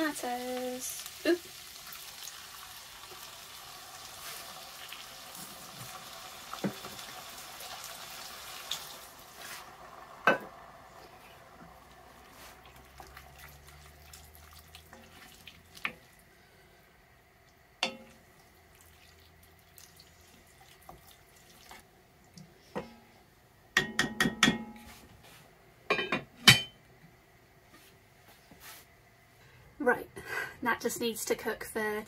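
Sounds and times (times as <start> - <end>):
food sizzling in a pot: 0.0 - 16.3
wooden spoon stirring stew: 11.2 - 16.1
spoon knocking on pot: 17.8 - 18.1, 23.8 - 24.8.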